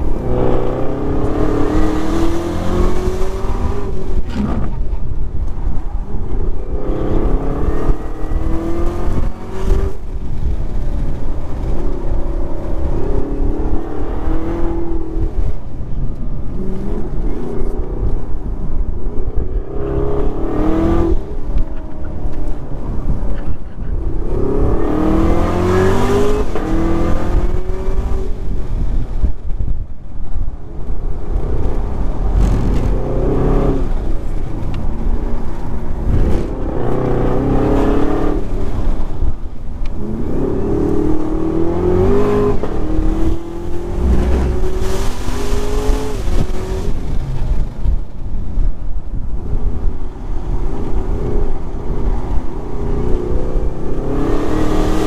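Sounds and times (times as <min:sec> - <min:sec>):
car engine revving hard: 0:00.0 - 0:04.8, 0:24.2 - 0:28.2, 0:40.0 - 0:47.7, 0:52.9 - 0:55.0.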